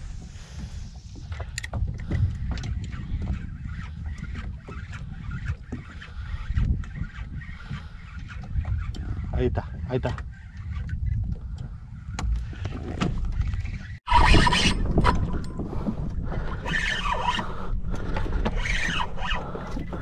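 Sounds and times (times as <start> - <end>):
water sloshing around boat: 0.0 - 20.0
wind rumbling on microphone: 0.0 - 20.0.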